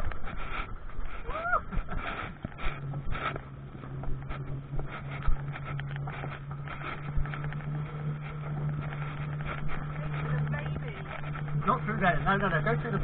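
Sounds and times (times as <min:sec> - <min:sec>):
electric drive humming: 0:00.0 - 0:13.0.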